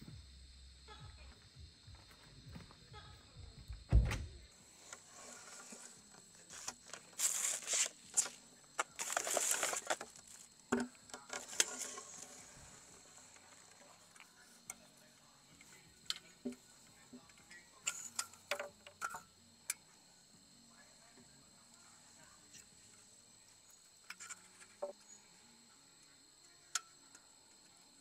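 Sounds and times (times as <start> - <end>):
rustling and handling noises: 4.6 - 14.7
high-pitched insect trill: 4.8 - 28.0.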